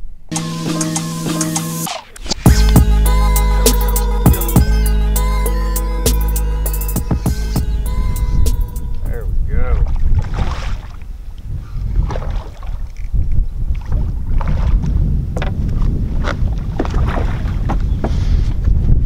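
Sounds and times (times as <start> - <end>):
wind buffeting microphone: 8.2 - 19.0
water slapping boat hull: 9.8 - 11.2, 11.9 - 18.1
sharp water splashes: 9.9 - 11.1.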